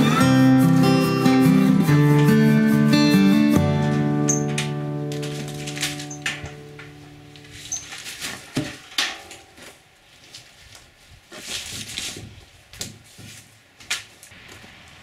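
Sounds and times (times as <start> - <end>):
plastic hose rustling: 3.8 - 14.4.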